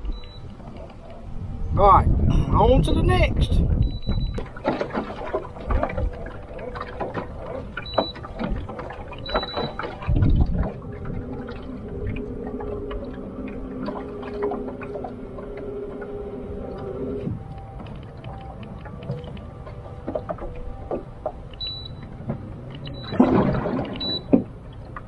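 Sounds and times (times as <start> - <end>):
short electronic beeps: 0.0 - 0.5, 3.8 - 4.4, 7.8 - 8.2, 9.2 - 9.9, 21.6 - 22.1, 22.8 - 23.3, 24.0 - 24.3
water slapping boat hull: 2.7 - 25.0.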